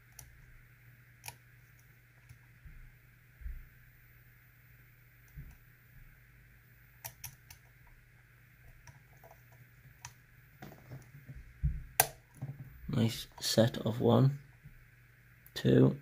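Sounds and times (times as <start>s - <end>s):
soft handling noise: 8.6s - 13.7s.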